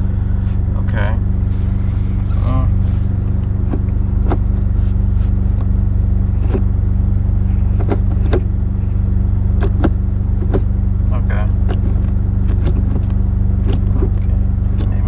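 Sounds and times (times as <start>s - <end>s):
car engine idling: 0.0s - 15.0s
gear shifter clicks and clunks: 2.3s - 6.8s, 7.5s - 15.0s.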